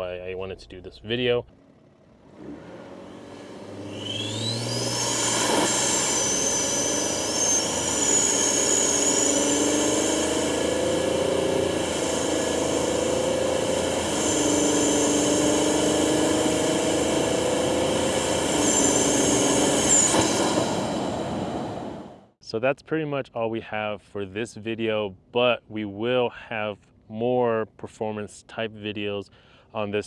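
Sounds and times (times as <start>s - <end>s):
engine accelerating: 0.0s - 22.4s
high turbo whistle: 2.6s - 22.3s.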